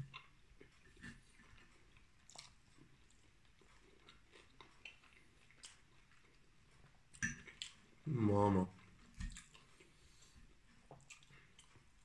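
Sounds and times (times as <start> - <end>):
close-up chewing: 0.0 - 12.0.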